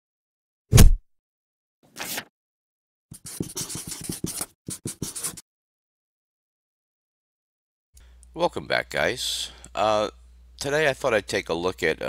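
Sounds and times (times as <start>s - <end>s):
marker pen scratching on paper: 3.1s - 5.4s.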